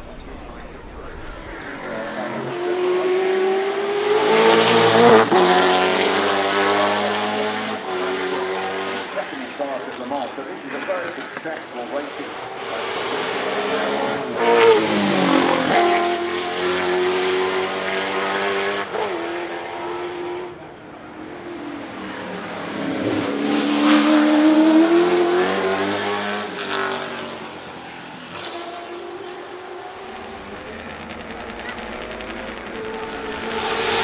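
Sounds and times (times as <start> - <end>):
race car engine revving past: 0.0 - 9.2, 12.1 - 20.6, 21.3 - 34.0.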